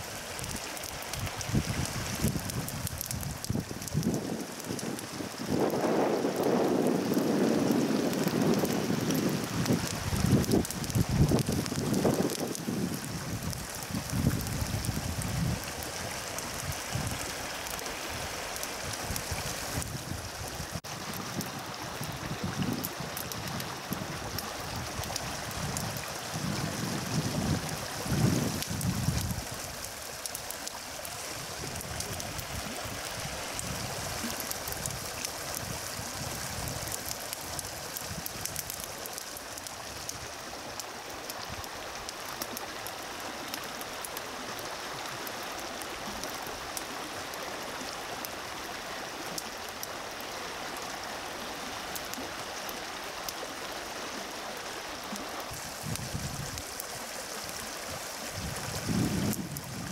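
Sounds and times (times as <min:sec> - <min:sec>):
low rush of fire: 0:00.0 - 0:40.4, 0:55.5 - 0:59.9
grass fire crackling: 0:00.0 - 0:59.9.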